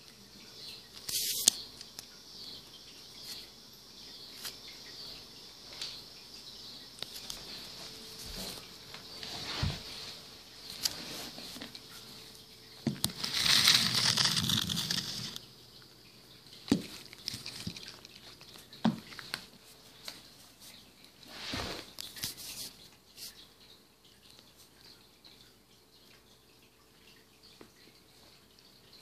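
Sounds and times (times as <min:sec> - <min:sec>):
cat crunching dry kibble: 0:17.0 - 0:18.5.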